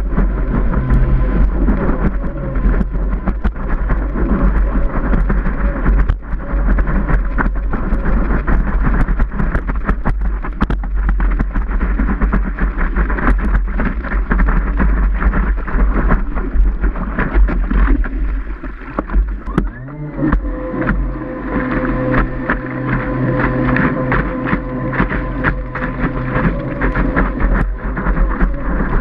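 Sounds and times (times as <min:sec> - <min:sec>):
whitewater rushing: 0:00.0 - 0:29.0
wind buffeting microphone: 0:00.0 - 0:29.0.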